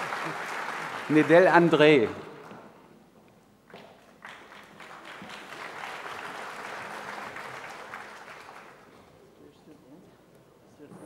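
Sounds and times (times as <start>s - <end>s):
audience applauding: 0.0s - 2.2s, 4.0s - 9.2s.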